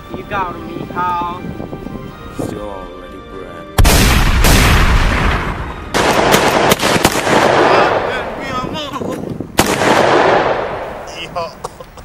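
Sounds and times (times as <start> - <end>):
echoing gunshots: 3.8 - 8.6, 9.6 - 11.1.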